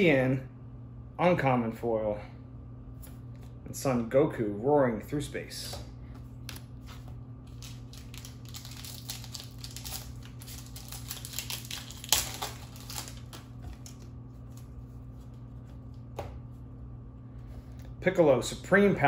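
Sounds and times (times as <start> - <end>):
foil wrapper crinkling: 6.4 - 16.0
wrapper ripping: 7.4 - 14.8.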